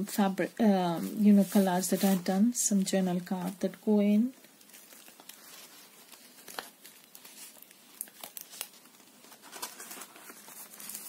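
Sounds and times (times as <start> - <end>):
paper rustling and crinkling: 4.2 - 11.0.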